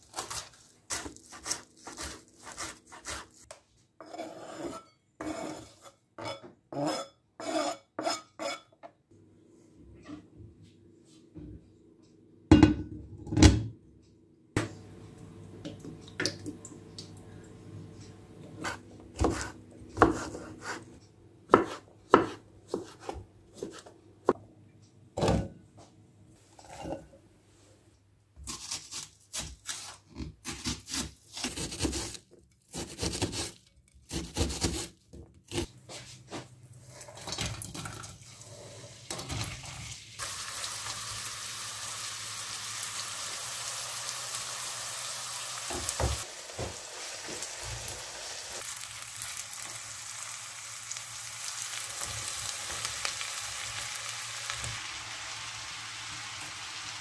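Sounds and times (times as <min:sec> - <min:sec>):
knife chopping on cutting board: 0:18.6 - 0:20.8, 0:21.5 - 0:24.4
onion sizzling in frying pan: 0:38.4 - 0:57.0.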